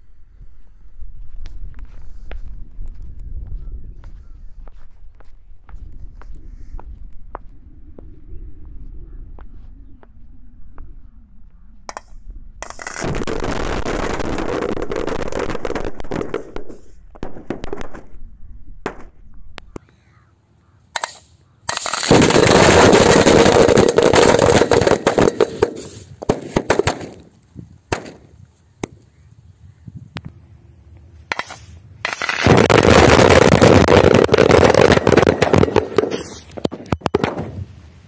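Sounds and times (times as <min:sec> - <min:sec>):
firecracker string crackling bangs: 0:21.0 - 0:27.2, 0:27.9 - 0:28.3, 0:31.3 - 0:37.6.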